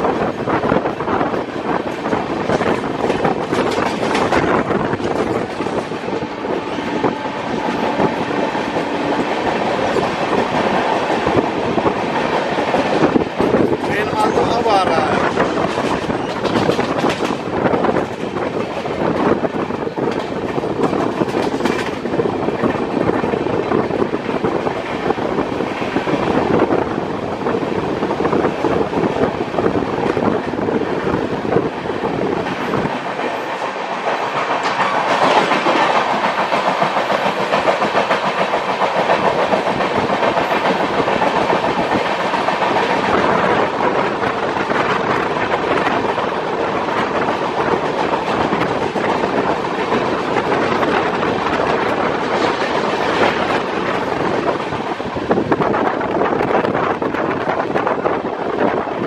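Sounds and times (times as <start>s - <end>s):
train rumble: 0.0s - 59.0s
train wheels clicking over rail joints: 0.0s - 59.0s.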